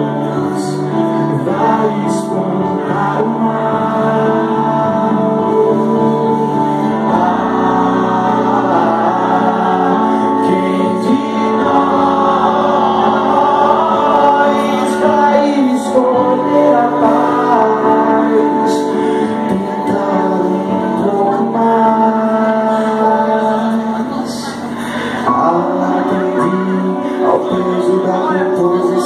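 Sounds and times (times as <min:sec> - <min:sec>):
keyboard: 0:00.0 - 0:29.0
man singing: 0:00.0 - 0:29.0.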